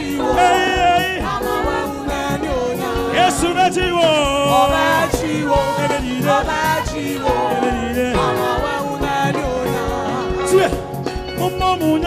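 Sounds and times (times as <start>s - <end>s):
gospel band with drum beat: 0.0s - 12.0s
person singing: 0.0s - 12.0s.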